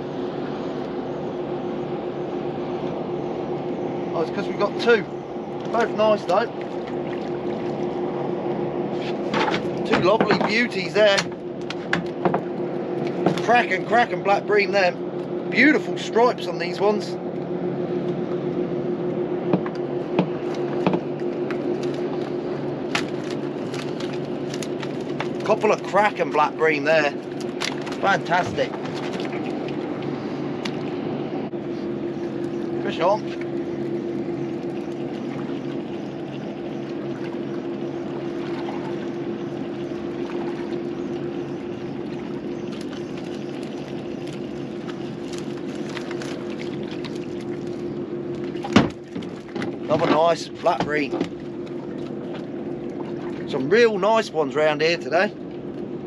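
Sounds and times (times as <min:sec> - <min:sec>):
steady low hum: 0:00.0 - 0:56.0
wind and water noise: 0:00.0 - 0:56.0
clicks and knocks handling fish: 0:09.1 - 0:13.6, 0:19.5 - 0:25.8, 0:27.2 - 0:31.0, 0:42.7 - 0:53.5.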